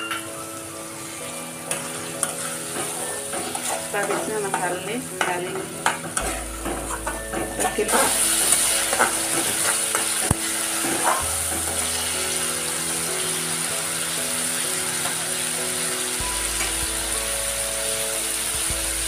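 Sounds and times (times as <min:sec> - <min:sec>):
paste sizzling in oil: 0:00.9 - 0:19.0
metal spatula scraping pan: 0:01.7 - 0:12.0.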